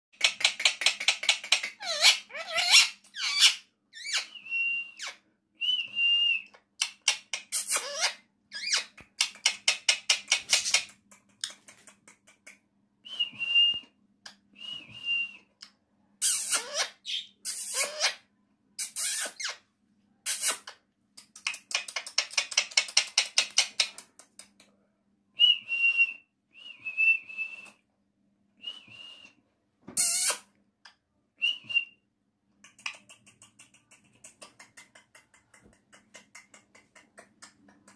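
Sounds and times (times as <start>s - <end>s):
parakeet whistling and chattering: 0.2s - 4.4s, 30.0s - 30.4s
parakeet squawks: 1.8s - 4.2s.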